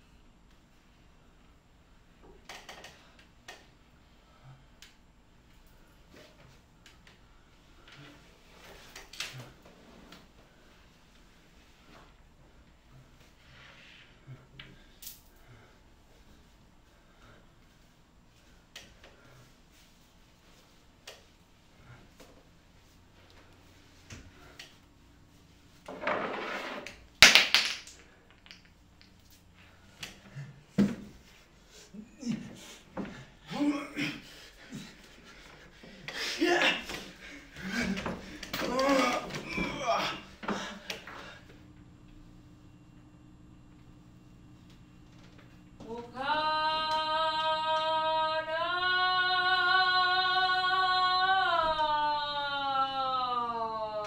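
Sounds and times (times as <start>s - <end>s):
woman singing held notes: 45.8s - 54.0s.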